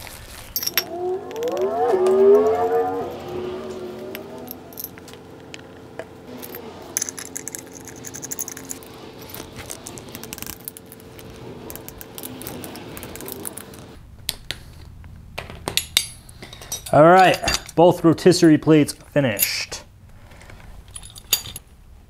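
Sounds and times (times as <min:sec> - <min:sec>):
steady hum: 0:00.0 - 0:22.0
steel bolts clinking: 0:15.4 - 0:18.0.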